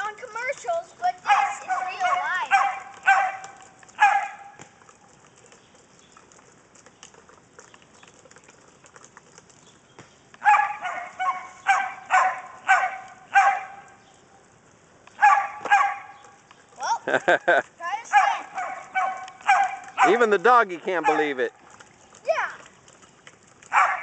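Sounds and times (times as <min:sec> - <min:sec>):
dog barking: 0:01.2 - 0:04.6, 0:10.4 - 0:13.9, 0:15.2 - 0:16.1, 0:18.1 - 0:21.3, 0:23.7 - 0:24.0.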